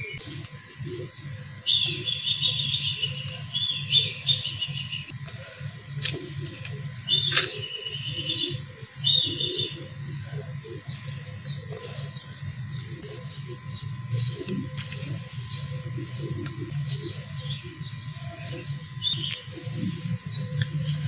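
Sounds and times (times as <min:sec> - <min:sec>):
bird chirping in trills: 0:01.0 - 0:05.2, 0:06.3 - 0:21.0
sand mix crunching by hand: 0:11.4 - 0:21.0.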